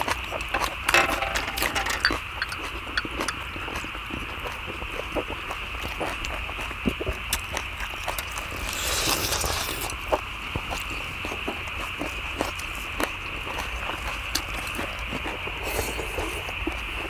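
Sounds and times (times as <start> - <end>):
chewing: 0.0 - 0.9, 2.0 - 17.0
chopsticks clicking on metal lid: 0.8 - 3.4.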